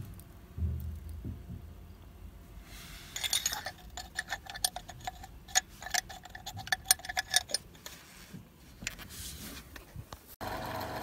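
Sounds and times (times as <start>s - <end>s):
dipstick clicking and rattling: 3.2s - 7.7s.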